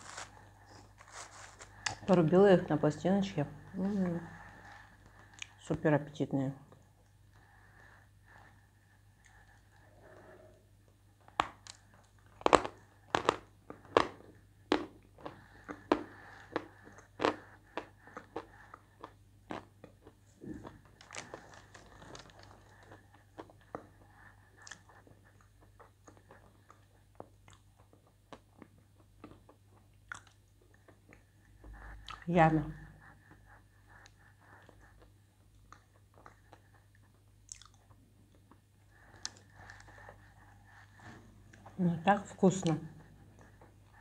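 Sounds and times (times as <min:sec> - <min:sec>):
crunching and chewing clay: 0:00.0 - 0:02.1, 0:11.2 - 0:32.4, 0:33.0 - 0:41.7.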